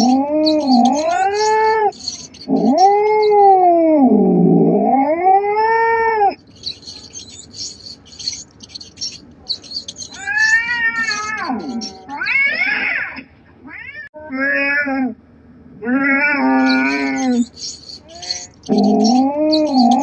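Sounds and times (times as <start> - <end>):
faint high rapid clicking: 0.0 - 3.6, 6.4 - 12.0, 16.7 - 20.0
cat yowling: 0.0 - 7.3, 8.2 - 15.0, 15.8 - 20.0.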